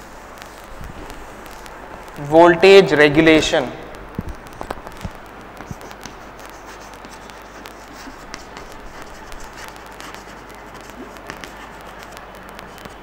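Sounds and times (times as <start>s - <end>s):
room noise: 0.0s - 13.0s
chalk tapping and scratching: 4.2s - 13.0s.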